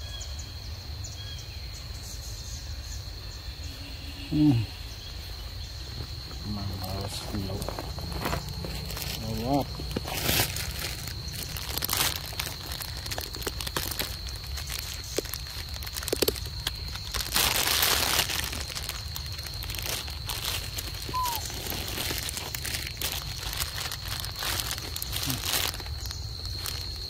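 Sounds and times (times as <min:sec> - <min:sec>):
crinkling and rustling: 0:05.9 - 0:27.0
thin high tone: 0:21.1 - 0:21.5.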